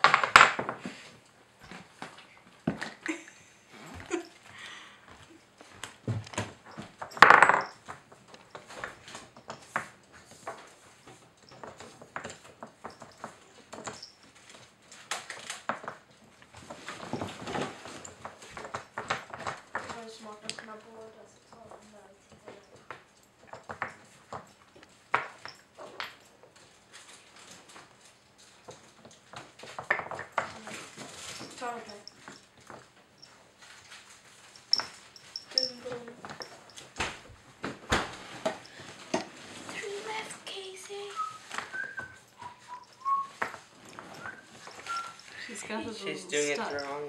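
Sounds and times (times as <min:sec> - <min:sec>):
wooden pieces clicking and knocking: 0:00.0 - 0:03.1, 0:05.8 - 0:20.8, 0:21.4 - 0:37.3, 0:41.2 - 0:45.3
wooden puzzle toy knocking: 0:07.2 - 0:07.7.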